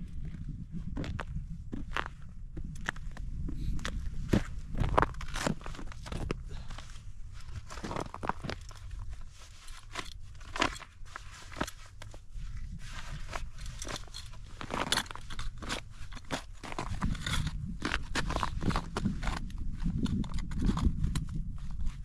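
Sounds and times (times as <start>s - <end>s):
low steady rumble: 0.0s - 22.0s.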